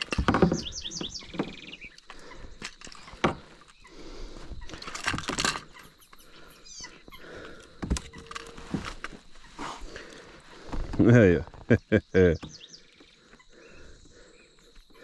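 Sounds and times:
fishing line handling knocks and rustles: 0:00.0 - 0:03.8, 0:04.6 - 0:05.8, 0:07.4 - 0:11.1.

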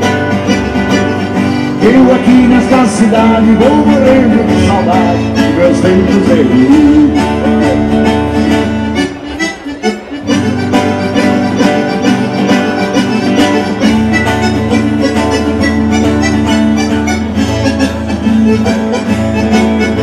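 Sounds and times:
bass: 0:00.0 - 0:20.0
instrumental melody line: 0:00.0 - 0:20.0
strummed acoustic guitars: 0:00.0 - 0:20.0.

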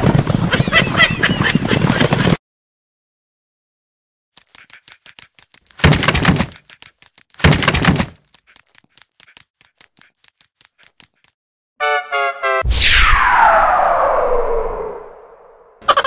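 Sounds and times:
dog claws clicking on wood floor: 0:04.4 - 0:11.4.

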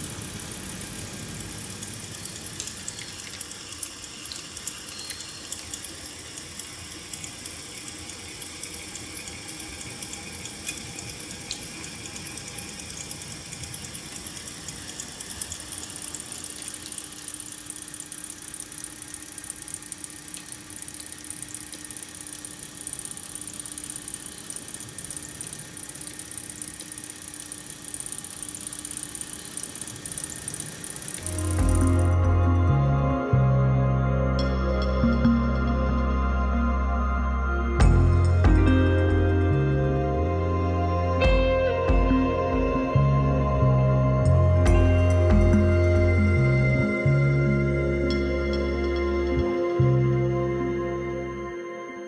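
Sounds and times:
rapid mechanical ticking: 0:00.0 - 0:32.3
motor whirring with low hum: 0:00.0 - 0:51.7.

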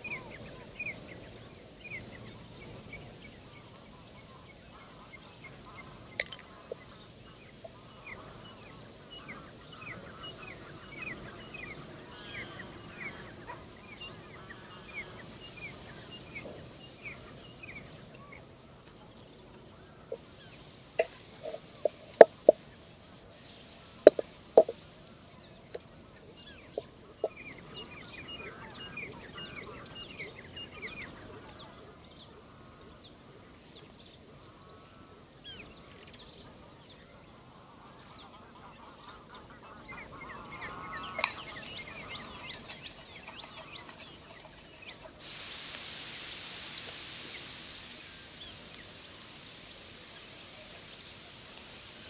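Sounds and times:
birds chirping: 0:00.0 - 0:52.0
honking bird call: 0:04.8 - 0:17.6, 0:38.2 - 0:45.2.

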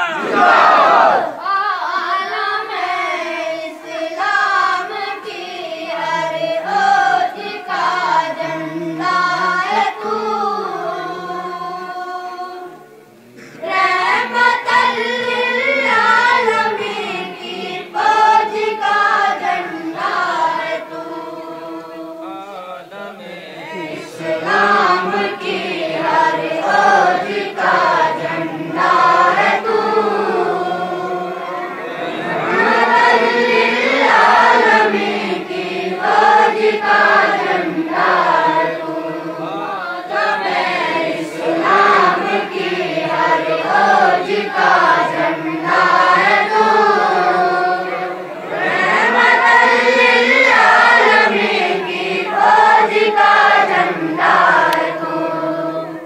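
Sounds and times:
men singing together: 0:02.5 - 0:12.4, 0:13.4 - 0:56.0.

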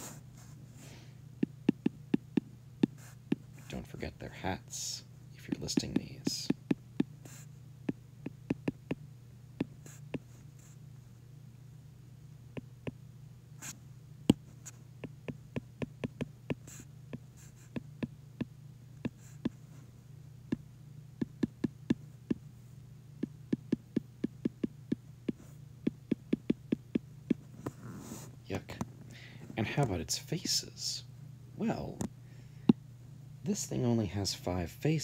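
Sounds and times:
steady low hum: 0:00.0 - 0:35.0
stylus tapping on glass screen: 0:07.9 - 0:09.0.

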